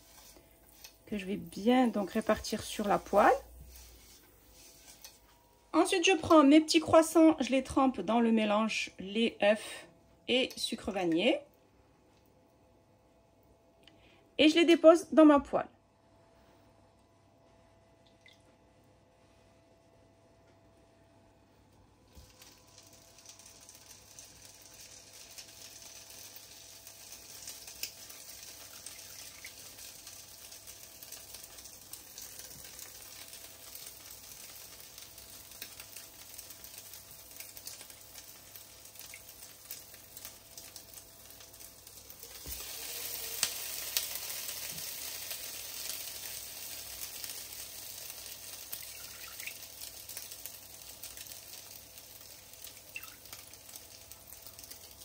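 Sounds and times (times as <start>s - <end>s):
croissants sizzling in butter: 0.0s - 7.8s, 22.0s - 55.0s.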